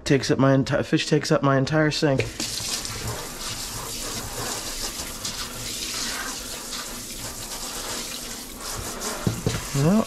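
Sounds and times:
faucet sprayer running: 0:02.2 - 0:10.0
water splashing in metal sink: 0:02.2 - 0:10.0.

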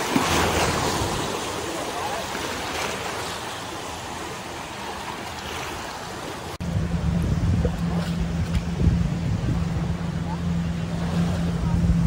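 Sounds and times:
small waves breaking: 0:00.0 - 0:12.0
low engine drone: 0:06.4 - 0:12.0
wind rumble: 0:06.6 - 0:12.0.

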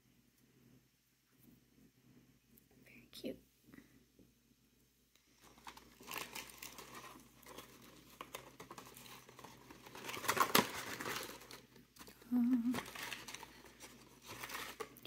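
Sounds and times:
packaging crinkling: 0:05.3 - 0:15.0.

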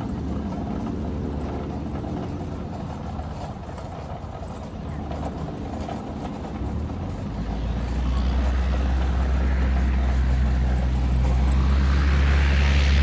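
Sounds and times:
propeller plane engine humming: 0:00.0 - 0:13.0.

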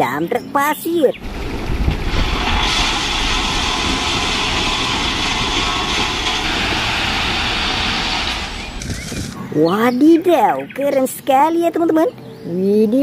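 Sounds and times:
diesel truck engine rumbling: 0:01.1 - 0:10.7
gravel loaded into truck bed: 0:01.2 - 0:09.5.

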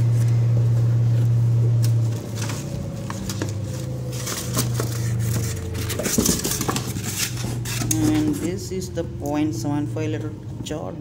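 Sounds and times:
paper and cardboard rustling: 0:00.0 - 0:08.6
washing machine motor humming: 0:00.0 - 0:11.0.

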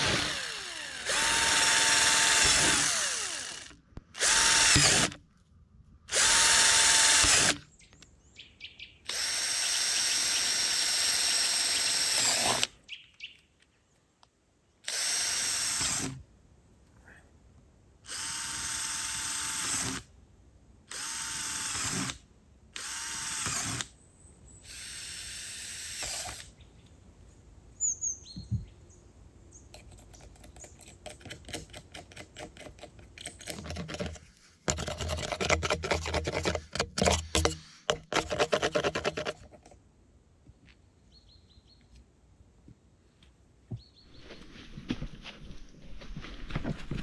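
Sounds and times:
cordless drill driving screws: 0:00.0 - 0:05.2, 0:06.1 - 0:07.7, 0:09.1 - 0:12.7, 0:14.8 - 0:16.2, 0:18.1 - 0:20.1, 0:20.9 - 0:22.2, 0:22.8 - 0:23.9, 0:24.7 - 0:26.5
rattling and knocking: 0:31.0 - 0:39.8.

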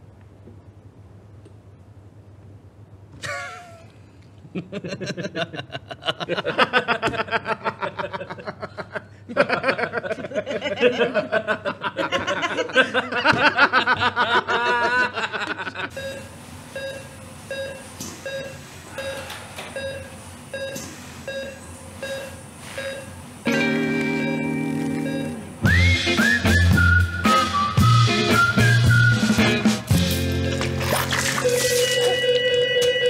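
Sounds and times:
people laughing: 0:04.5 - 0:15.9
patient monitor beeping: 0:15.9 - 0:25.7, 0:31.4 - 0:33.0.

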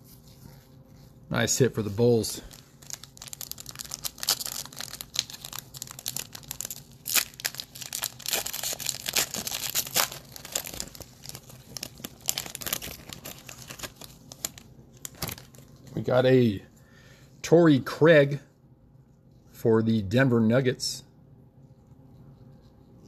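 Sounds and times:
foil wrapper tearing and crinkling: 0:02.0 - 0:15.7.

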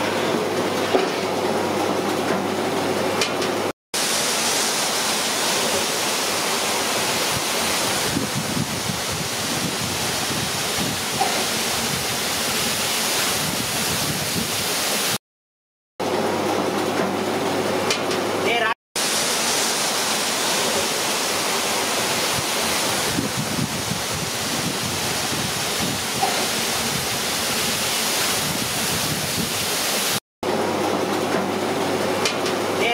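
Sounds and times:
oil sizzling in a wok: 0:19.0 - 0:30.2.

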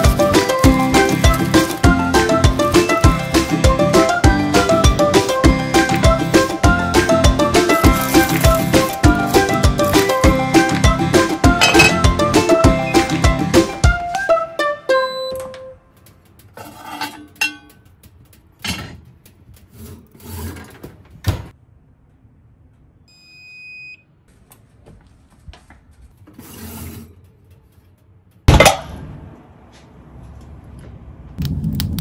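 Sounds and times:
music: 0:00.0 - 0:15.8
kitchen handling knocks and clicks: 0:11.6 - 0:12.0
pot clunking on oven rack: 0:11.6 - 0:12.0
oven control panel beep: 0:15.0 - 0:15.5, 0:23.1 - 0:24.1.

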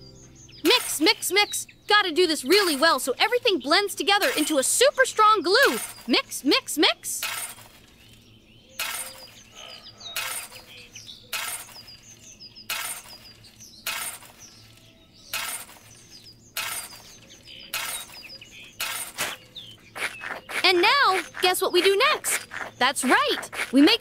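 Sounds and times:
birds chirping faintly: 0:00.0 - 0:24.0
shovel scraping dry sand: 0:04.2 - 0:04.7, 0:05.6 - 0:06.3, 0:07.2 - 0:08.2, 0:08.8 - 0:09.5, 0:10.2 - 0:24.0.

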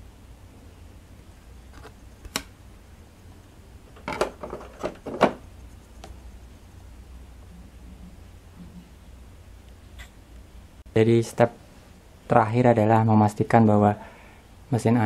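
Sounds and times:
plastic clacks and knocks: 0:04.0 - 0:05.4.

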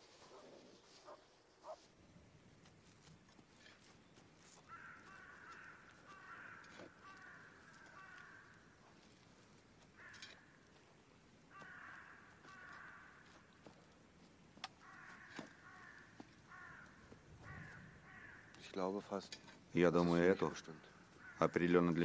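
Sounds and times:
crows cawing: 0:04.4 - 0:14.0, 0:14.7 - 0:18.8, 0:20.4 - 0:22.0.

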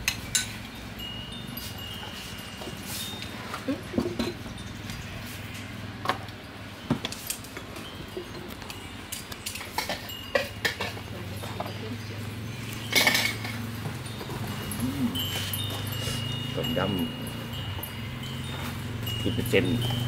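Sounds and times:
spoons and bowls clinking: 0:07.0 - 0:20.0.

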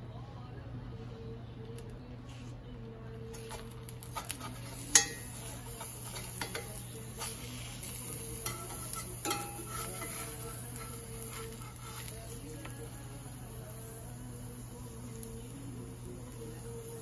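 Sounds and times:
eggs sizzling: 0:03.3 - 0:17.0
metal spatula scraping skillet: 0:03.4 - 0:12.5.

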